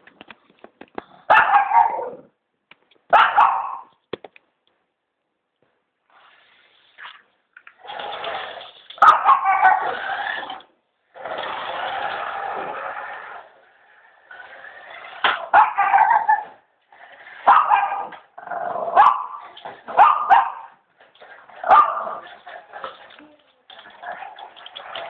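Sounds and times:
small dog barking: 1.3 - 2.2, 3.1 - 3.9, 9.0 - 9.9, 15.5 - 16.5, 17.5 - 18.2, 18.9 - 20.8, 21.7 - 22.2
toy car motor whirring: 9.8 - 15.4.

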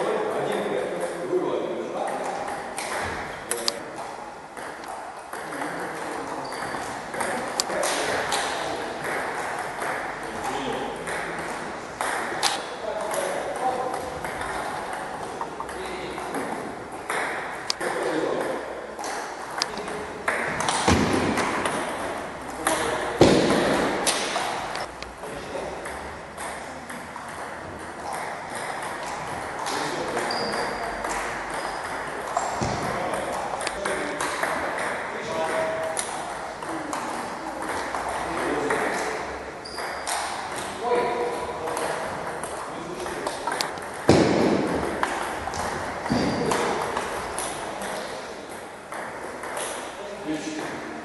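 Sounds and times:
table tennis ball clicking off paddles: 2.0 - 49.9
heavy thumps: 23.1 - 24.8, 43.8 - 47.2.

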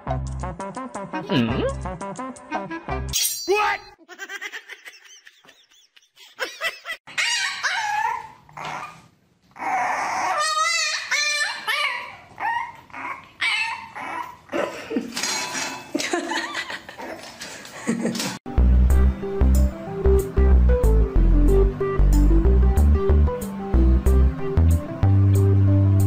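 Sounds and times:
puppy whining and yipping: 7.1 - 14.5.

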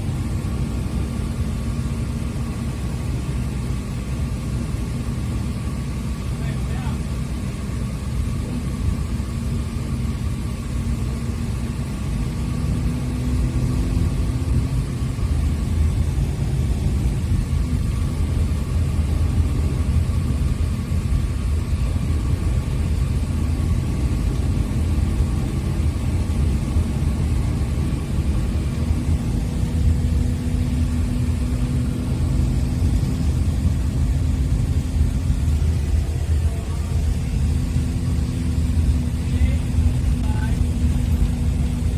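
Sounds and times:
bus engine and road rumble: 0.0 - 41.9.

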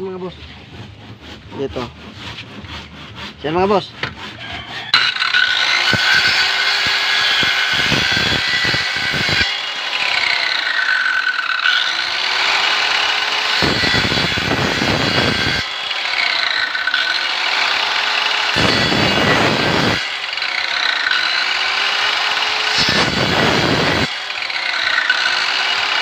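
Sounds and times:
circular saw cutting wood: 0.0 - 26.0
circular saw motor whine: 4.9 - 26.0.

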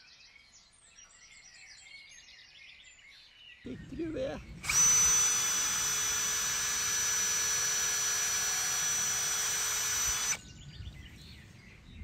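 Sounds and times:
electric drill whining: 4.4 - 10.5.

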